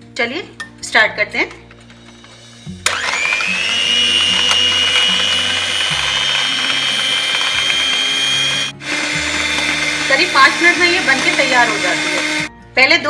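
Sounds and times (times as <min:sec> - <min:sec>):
electric hand mixer whipping cream: 0:02.8 - 0:12.5.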